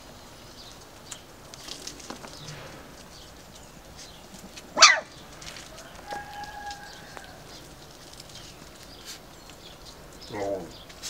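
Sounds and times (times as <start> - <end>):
puppy yelping: 4.7 - 5.2.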